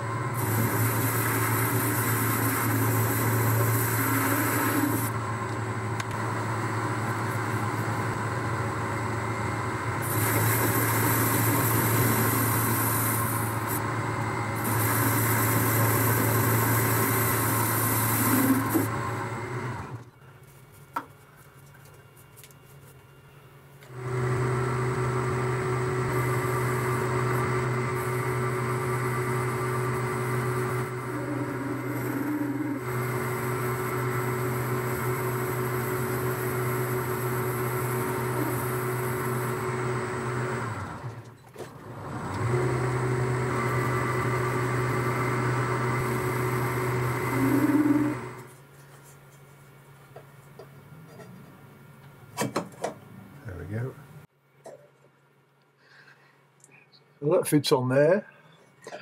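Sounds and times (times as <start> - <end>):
metal lathe running: 0.0 - 20.0, 24.0 - 41.1, 42.2 - 48.5
lathe tool cutting metal: 0.1 - 5.3, 6.2 - 19.8, 24.0 - 40.9, 42.4 - 48.5.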